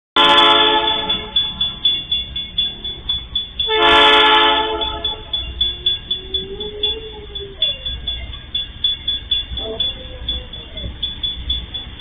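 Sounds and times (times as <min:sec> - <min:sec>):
locomotive air horn blasts: 0:00.2 - 0:01.4, 0:03.6 - 0:05.4
fast regular ticking: 0:00.9 - 0:03.8, 0:04.8 - 0:12.0.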